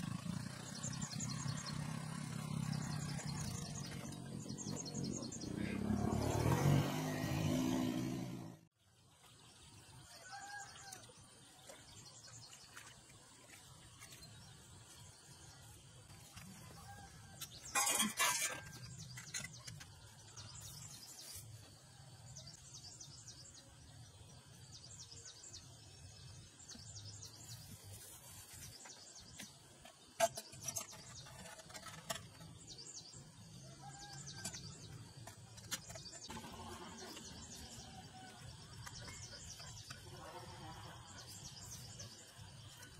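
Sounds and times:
birds chirping: 0.0s - 8.5s, 22.3s - 42.9s
tiller engine cutting off: 0.0s - 8.5s, 34.0s - 40.9s.

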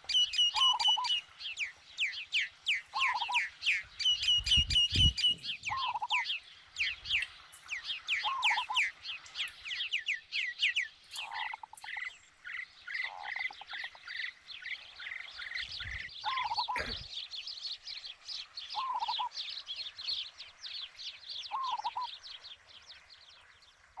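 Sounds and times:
low warbling call: 4.3s - 6.2s.

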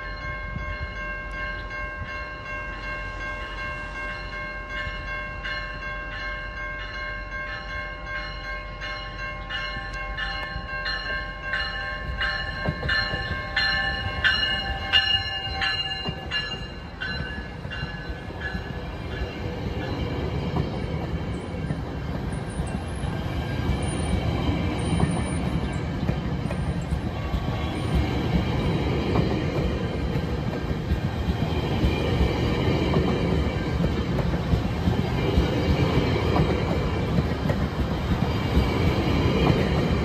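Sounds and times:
train warning bell ringing: 0.0s - 31.1s
train coaches rumbling past: 0.0s - 40.0s.

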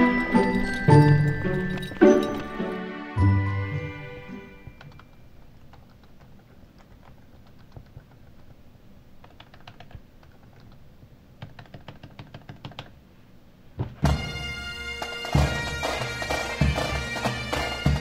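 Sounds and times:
laptop keyboard typing: 4.6s - 8.6s, 9.2s - 13.0s.

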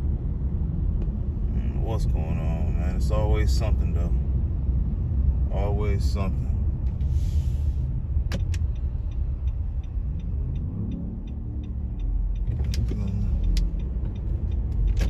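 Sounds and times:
car road rumble inside cabin: 0.0s - 15.0s
light regular ticking: 7.8s - 15.0s.

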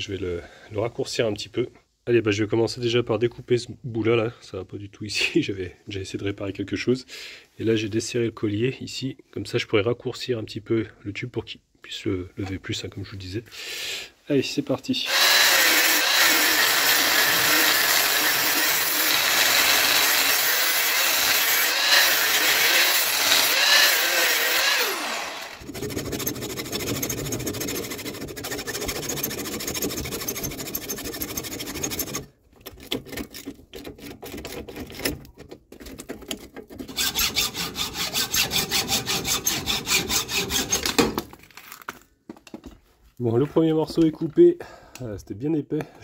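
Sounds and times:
power tool cutting metal: 15.1s - 32.2s, 36.9s - 41.0s
saw strokes on metal: 15.1s - 32.3s, 36.9s - 41.0s.

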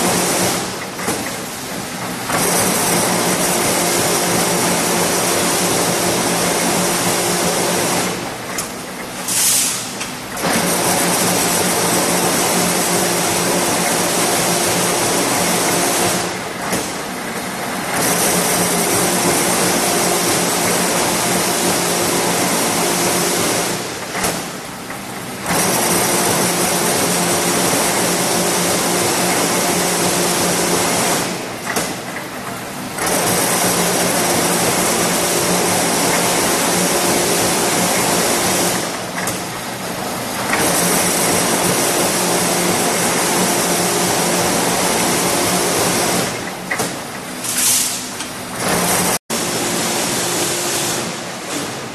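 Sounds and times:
machine whirring and humming: 0.0s - 51.9s.

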